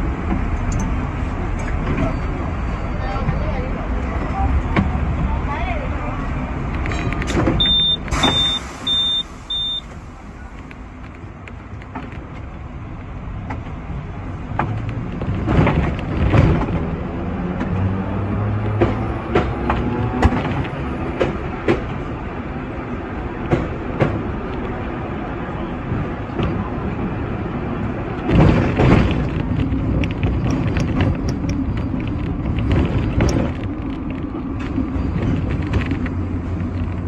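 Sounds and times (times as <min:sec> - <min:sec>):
tram rumbling along track: 0:00.0 - 0:37.0
wheels clunking on rails: 0:00.0 - 0:37.0
short high beeps: 0:07.6 - 0:09.9.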